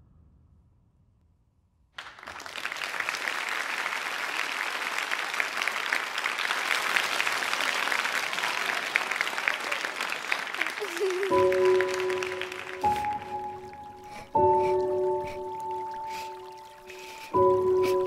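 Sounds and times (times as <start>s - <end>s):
audience applauding: 2.0s - 18.0s.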